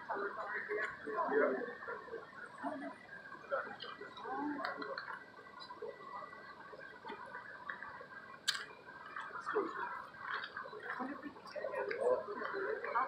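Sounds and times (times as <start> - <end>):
crowd murmuring and talking: 0.0 - 13.0.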